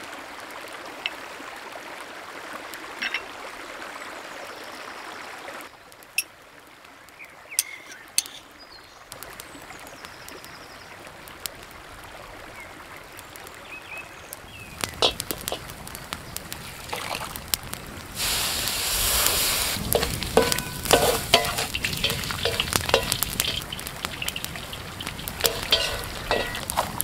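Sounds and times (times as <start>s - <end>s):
food sizzling in a pan: 13.7s - 27.0s
wooden spatula scraping a pan: 19.0s - 27.0s.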